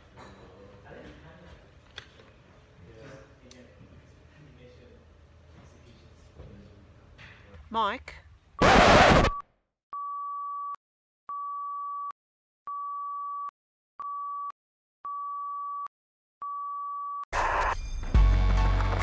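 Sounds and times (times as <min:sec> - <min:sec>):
loud noisy sound: 0:08.6 - 0:09.4.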